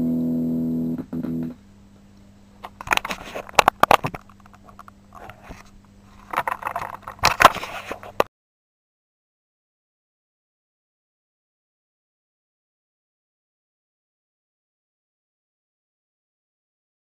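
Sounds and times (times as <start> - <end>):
electric guitar chord: 0.0 - 1.6
amp low hum: 0.0 - 8.3
handling clicks and scrapes: 2.7 - 8.3.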